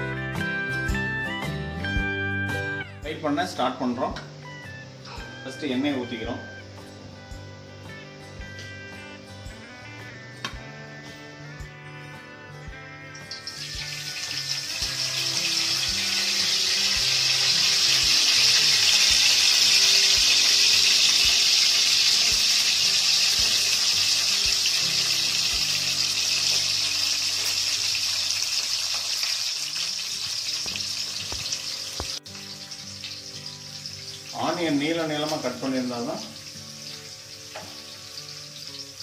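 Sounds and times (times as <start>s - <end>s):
hot oil sizzling: 13.1s - 39.0s.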